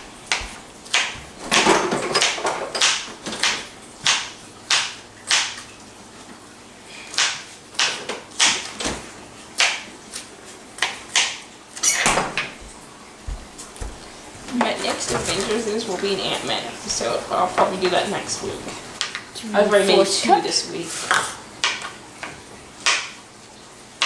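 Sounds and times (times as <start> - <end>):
knife chopping on plastic board: 0.3 - 5.6, 7.1 - 9.0.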